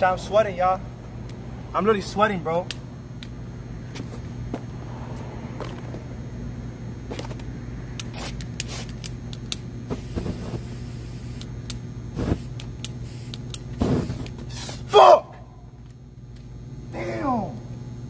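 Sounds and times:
steady low hum: 0.0s - 18.0s
aerosol spray can hissing: 9.9s - 11.5s, 12.1s - 14.8s.

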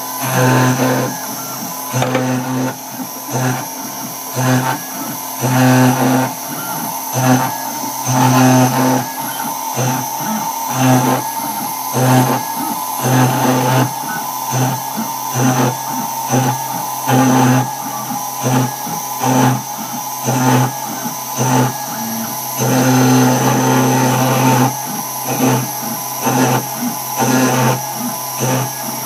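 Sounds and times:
router spindle high whine: 0.0s - 29.0s
stepper motors humming bursts: 0.0s - 29.0s.

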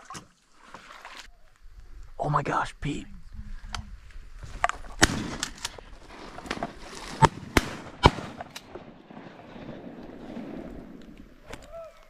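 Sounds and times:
shotgun shots: 5.0s - 5.7s, 7.1s - 10.4s.

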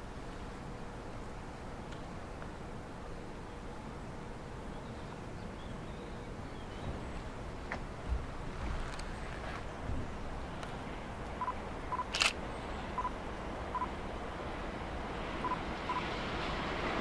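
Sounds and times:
steady background noise: 0.0s - 17.0s
faint short beeps: 13.0s - 13.2s, 15.4s - 16.0s.

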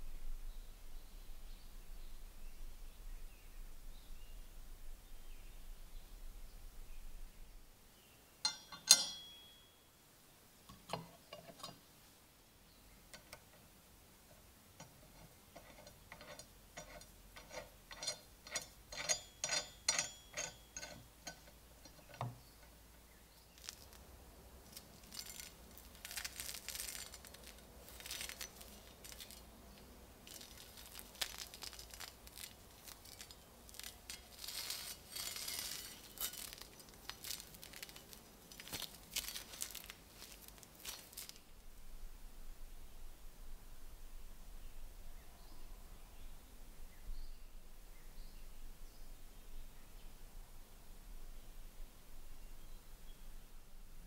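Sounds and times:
steel parts clinking on wood: 8.4s - 9.8s, 10.7s - 11.8s, 14.8s - 24.0s, 24.7s - 41.4s
gloved hands rustling: 20.4s - 41.6s.

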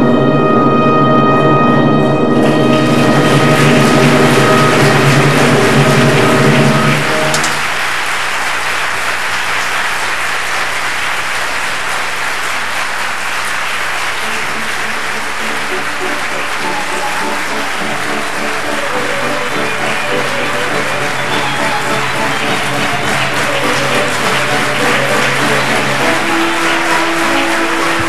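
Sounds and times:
music playing: 0.0s - 7.9s, 14.1s - 28.0s
audience applauding: 2.4s - 28.0s.

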